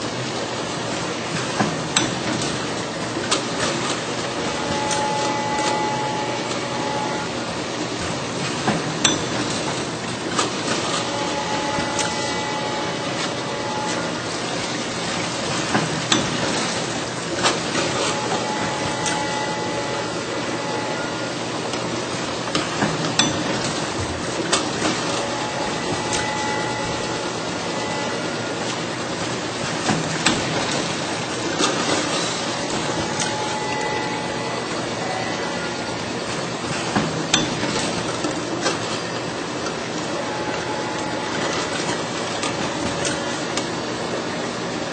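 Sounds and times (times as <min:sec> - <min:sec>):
filling machine running: 0:00.0 - 0:44.9
machine clacks and knocks: 0:01.4 - 0:06.7, 0:08.0 - 0:20.0, 0:22.4 - 0:27.4, 0:29.3 - 0:34.3, 0:36.3 - 0:39.2
faint held tone: 0:25.2 - 0:28.5, 0:32.7 - 0:35.8.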